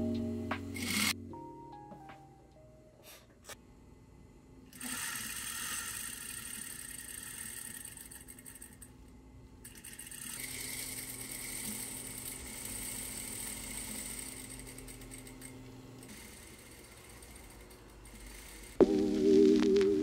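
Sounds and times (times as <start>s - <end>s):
sewing machine motor humming: 0.8s - 1.2s, 9.6s - 18.9s
sewing machine sewing: 4.8s - 8.9s, 9.6s - 18.8s.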